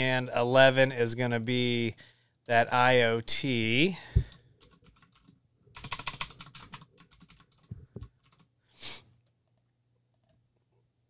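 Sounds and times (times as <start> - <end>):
computer keyboard typing: 4.6 - 8.5.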